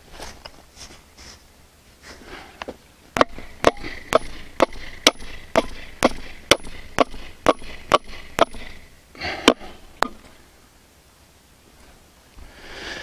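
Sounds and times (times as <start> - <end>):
hammer striking steel pin: 3.2 - 8.8, 9.4 - 10.2.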